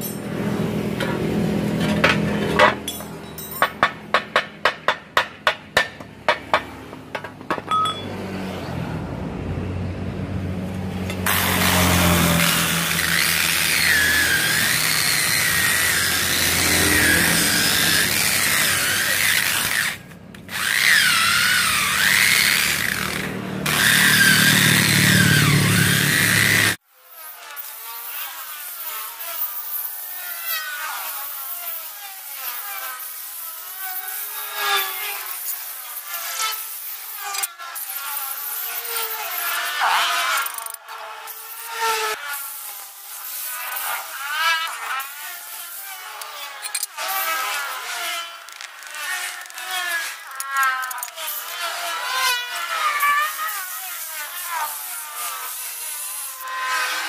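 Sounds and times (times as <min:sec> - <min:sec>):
hammer on cast iron: 0:02.0 - 0:08.1
angle grinder wire brush scrubbing: 0:11.1 - 0:26.8, 0:27.5 - 0:57.0.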